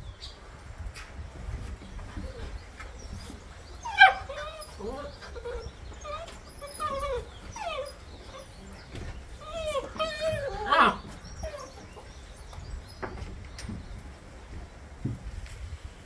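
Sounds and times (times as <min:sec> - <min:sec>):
puppies whining and whimpering: 0:02.1 - 0:12.8.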